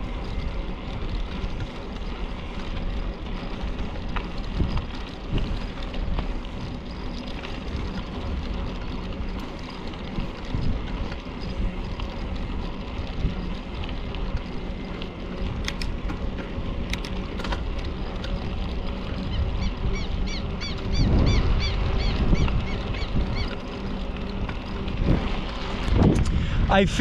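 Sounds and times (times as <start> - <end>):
wind buffeting the microphone: 15.6 - 27.0.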